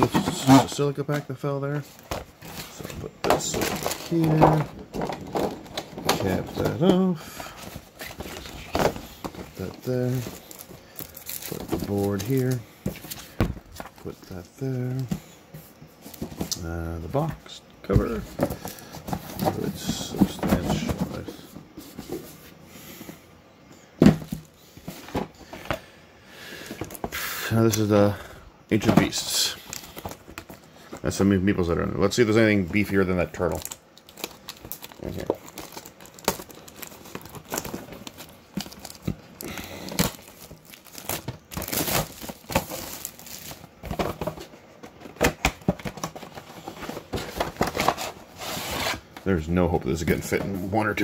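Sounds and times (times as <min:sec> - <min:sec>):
cardboard pieces rustling: 0:00.0 - 0:15.2, 0:32.4 - 0:49.0
plastic packaging crinkling: 0:01.9 - 0:14.1, 0:32.7 - 0:44.5.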